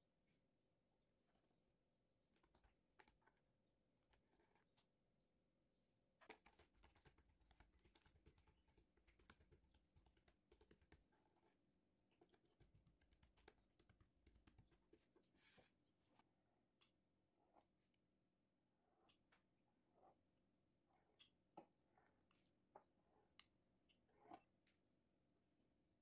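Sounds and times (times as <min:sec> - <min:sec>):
faint small clicks and taps: 0:02.3 - 0:03.4, 0:06.2 - 0:11.6, 0:12.2 - 0:15.2
soft rustle: 0:15.0 - 0:16.2.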